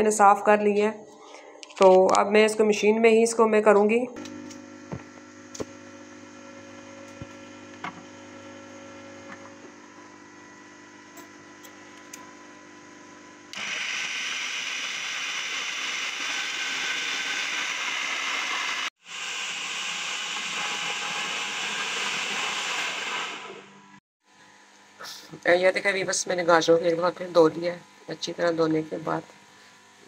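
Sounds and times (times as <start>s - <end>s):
food processor grinding: 4.2s - 23.8s.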